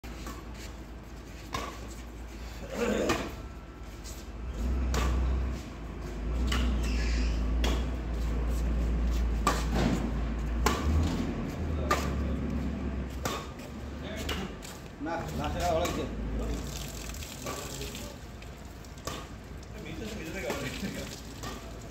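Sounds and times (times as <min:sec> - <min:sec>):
rackets hitting shuttlecock: 0:04.9 - 0:05.3, 0:06.4 - 0:08.0, 0:09.4 - 0:11.2, 0:11.8 - 0:12.4, 0:13.1 - 0:14.6, 0:15.6 - 0:16.1, 0:18.9 - 0:19.4, 0:20.4 - 0:21.8.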